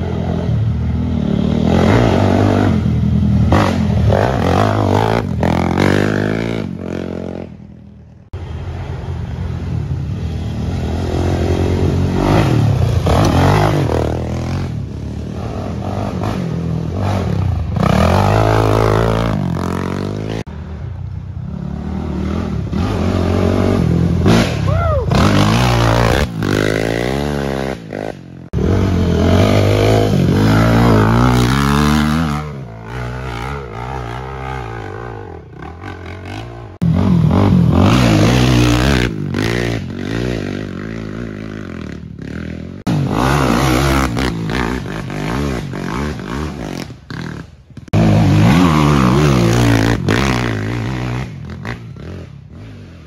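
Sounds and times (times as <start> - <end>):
quad bike engines revving past: 0.0 - 53.0.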